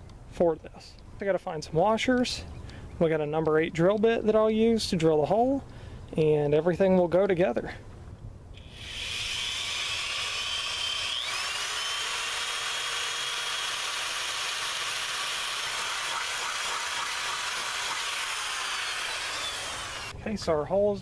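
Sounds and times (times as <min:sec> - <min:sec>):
power drill drilling metal: 0:08.6 - 0:20.1.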